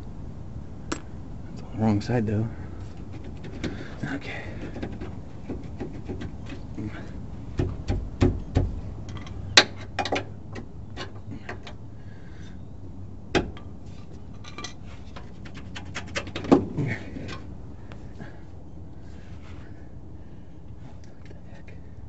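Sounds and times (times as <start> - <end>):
metal tools clinking and knocking: 14.3 - 14.8.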